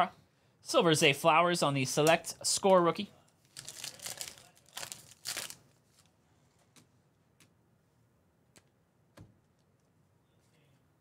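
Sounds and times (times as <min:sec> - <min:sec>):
foil wrapper tearing and crinkling: 0:03.5 - 0:06.1.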